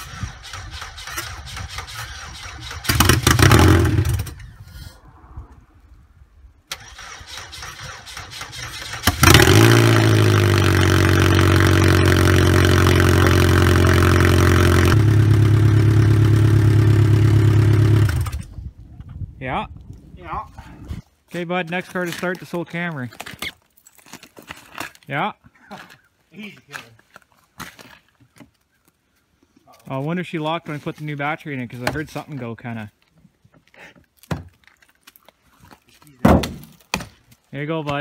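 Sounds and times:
starter motor cranking: 0.0s - 4.3s.

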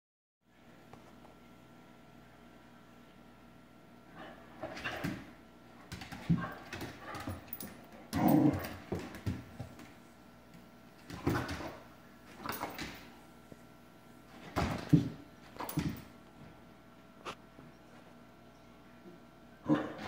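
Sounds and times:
claws clicking on hardwood floor: 5.9s - 10.0s, 11.0s - 13.1s.

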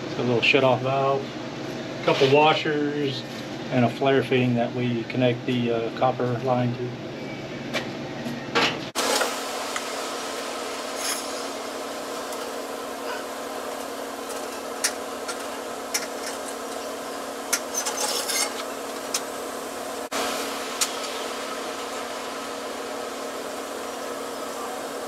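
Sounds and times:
steady hum: 8.9s - 25.0s.

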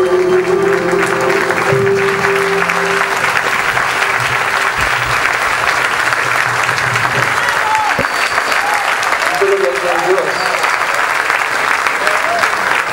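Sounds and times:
band holding notes: 0.0s - 7.3s
audience applauding: 0.0s - 12.9s.

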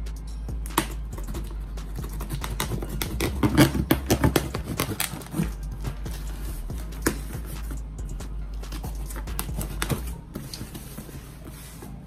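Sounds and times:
background music: 0.0s - 12.0s
knife slicing packing tape: 0.7s - 5.5s
cardboard handling: 2.2s - 6.4s, 8.6s - 12.0s.

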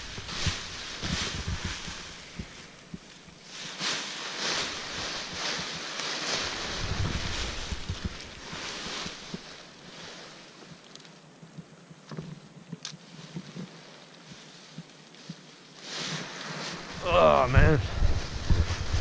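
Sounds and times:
fabric rustling: 0.0s - 10.6s, 13.0s - 19.0s
wind buffeting microphone: 6.6s - 8.4s, 16.8s - 19.0s.

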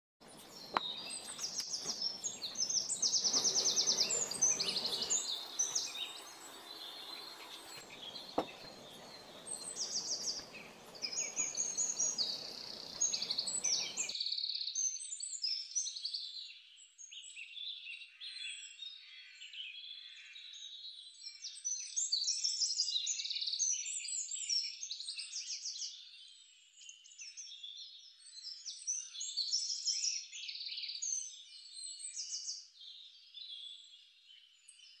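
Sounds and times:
small birds chirping: 0.2s - 14.2s.

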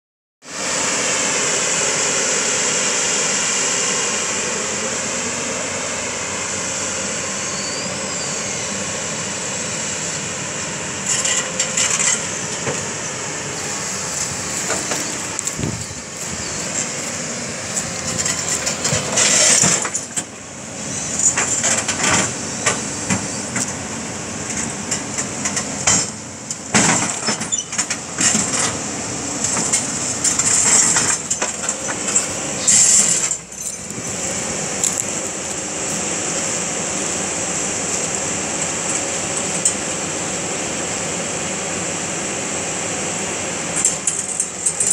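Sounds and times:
excavator diesel engine running: 0.5s - 44.9s.

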